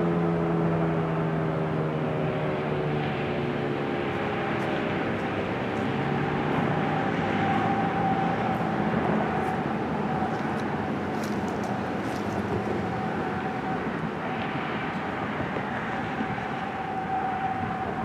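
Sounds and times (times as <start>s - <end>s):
warning siren steady tone: 0.0s - 18.0s
siren winding down: 4.4s - 18.0s.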